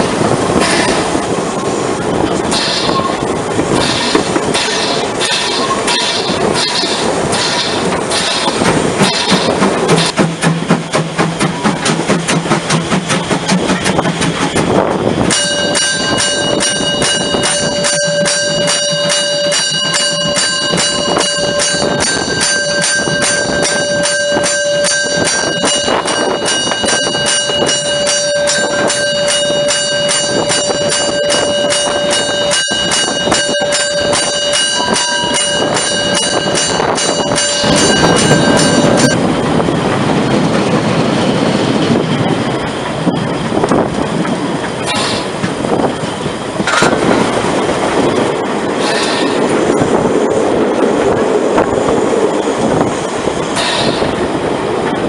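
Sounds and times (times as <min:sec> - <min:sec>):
steam train chuffing: 0:00.0 - 0:55.0
high multi-tone squeal: 0:02.4 - 0:10.2, 0:15.3 - 0:39.3.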